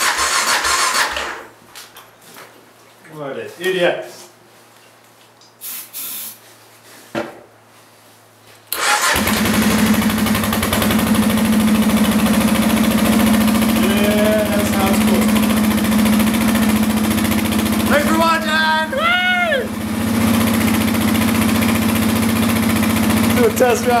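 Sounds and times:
motorcycle engine starting and idling: 0.0s - 1.5s, 8.7s - 24.0s.

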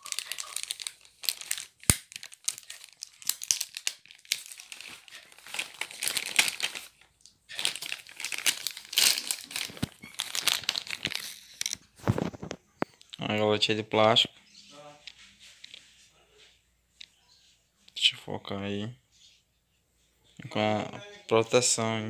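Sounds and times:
plastic wrapping crinkling: 0.0s - 12.6s.

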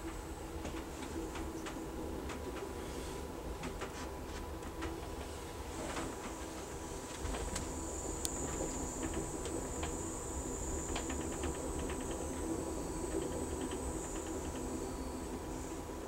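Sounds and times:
train wheels rumbling on rail: 0.0s - 16.0s
high-pitched whine: 7.6s - 16.0s.

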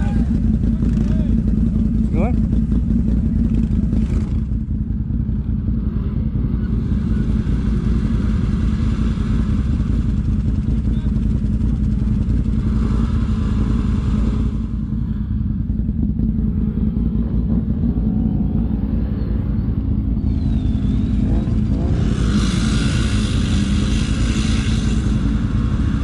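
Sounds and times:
atv engine running: 0.0s - 26.0s
hissing rush: 21.0s - 26.0s.

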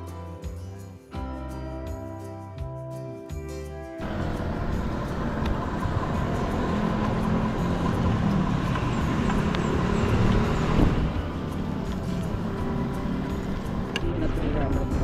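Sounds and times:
road traffic: 4.0s - 15.0s
vehicle engine: 4.0s - 15.0s.

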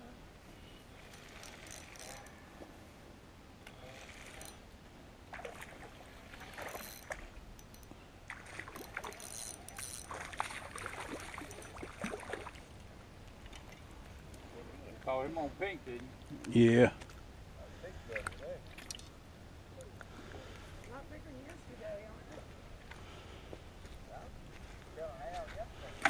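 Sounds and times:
fish splashing in water: 8.3s - 12.7s.

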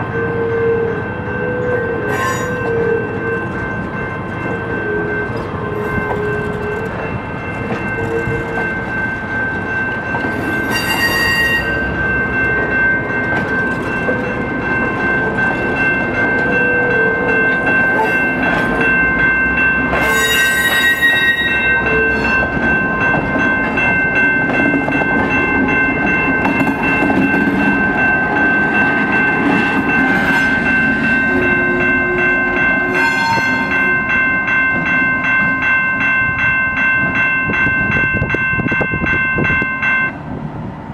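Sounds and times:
crossing signal bell ringing: 0.0s - 40.2s
diesel locomotive engine: 0.0s - 40.9s
high wheel squeals: 20.0s - 22.4s.

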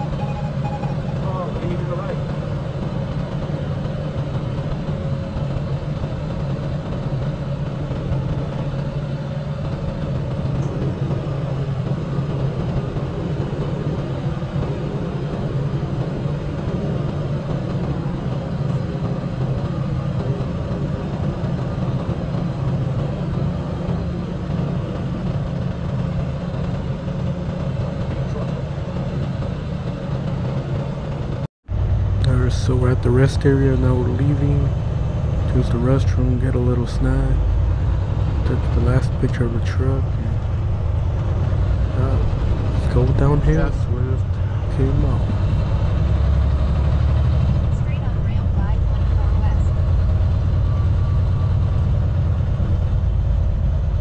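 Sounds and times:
diesel truck engine drone: 0.0s - 54.0s
road noise: 0.0s - 54.0s.

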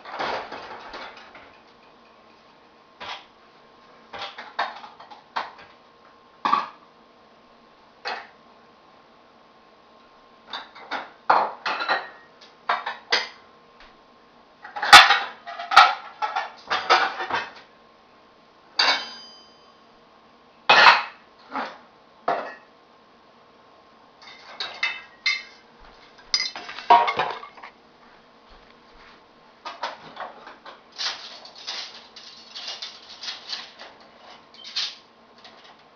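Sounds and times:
dishes and cutlery clinking: 18.8s - 19.7s, 24.2s - 25.6s, 26.2s - 27.7s.

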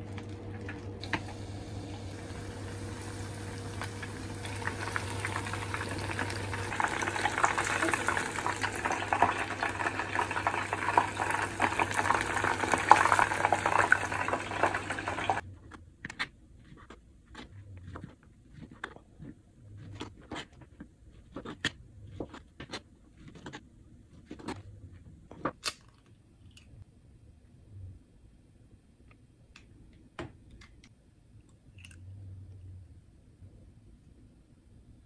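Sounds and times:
oil sizzling deep-frying: 0.0s - 15.4s
egg cracking: 0.1s - 24.6s.

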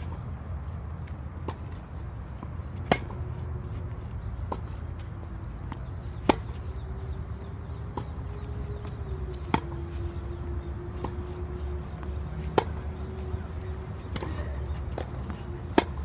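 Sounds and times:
racket hitting tennis ball: 2.4s - 3.4s, 5.7s - 7.1s, 9.4s - 9.8s, 12.0s - 12.8s, 14.0s - 16.0s.

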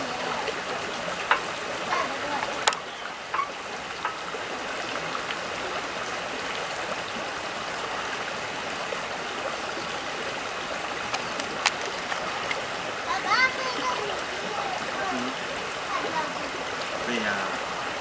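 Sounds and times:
stream running over rocks: 0.0s - 18.0s.

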